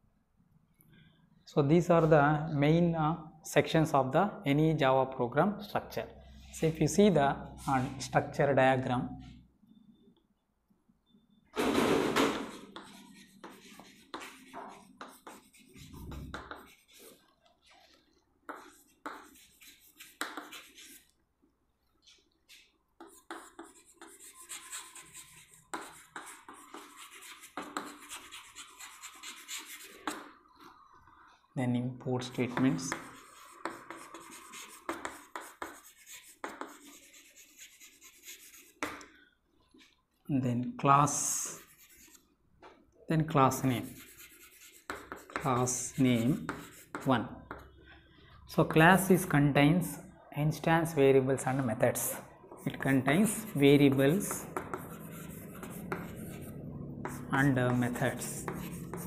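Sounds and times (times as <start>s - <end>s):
chalk tapping on board: 12.4s - 17.1s, 18.5s - 21.0s, 23.0s - 30.3s, 32.5s - 39.1s, 43.8s - 47.7s, 52.5s - 59.0s
chalk scratching on chalkboard: 12.4s - 21.2s, 22.0s - 30.4s, 32.2s - 39.0s, 41.1s - 42.3s, 43.5s - 47.1s, 52.6s - 59.0s.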